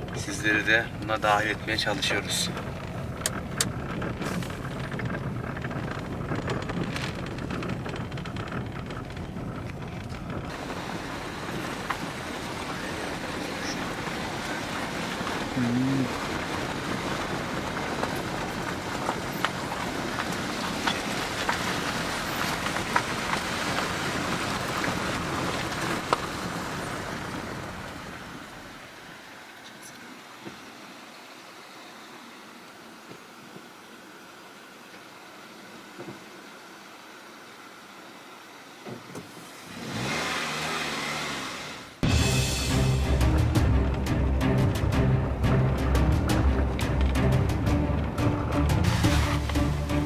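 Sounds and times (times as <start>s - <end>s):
stones ticking under tyres: 0.0s - 30.7s
car engine and road noise: 0.0s - 50.0s.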